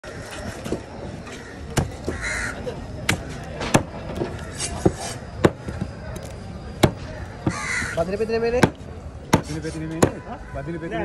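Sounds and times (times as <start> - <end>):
crow cawing: 1.2 - 3.4, 4.2 - 5.8, 7.0 - 8.3.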